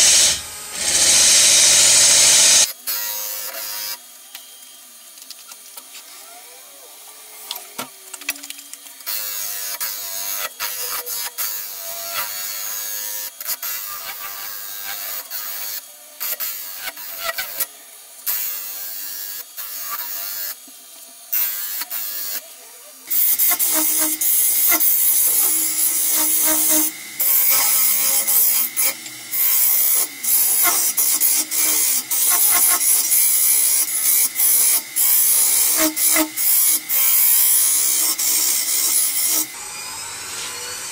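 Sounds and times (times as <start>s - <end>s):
lathe cutter scraping wood: 0.0s - 3.8s, 23.1s - 40.9s.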